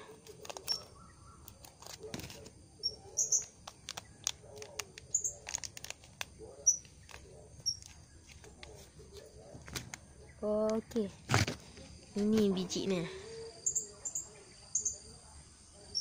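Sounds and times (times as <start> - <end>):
foil packet crinkling: 0.0 - 2.6, 3.4 - 10.0
bird chirps: 0.5 - 1.6, 2.8 - 4.3, 5.1 - 5.4, 6.6 - 8.3, 13.3 - 15.1.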